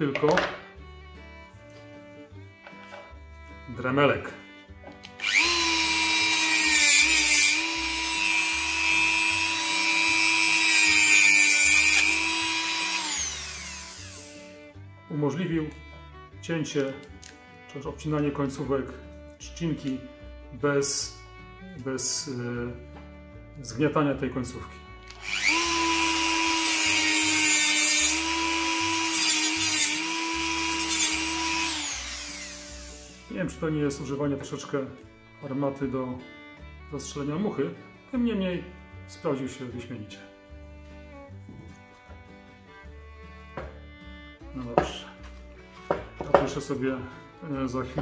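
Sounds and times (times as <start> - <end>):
rotary tool whining: 5.0 - 14.6, 25.1 - 33.3
hissing cutting bursts: 5.2 - 14.6, 25.2 - 33.3.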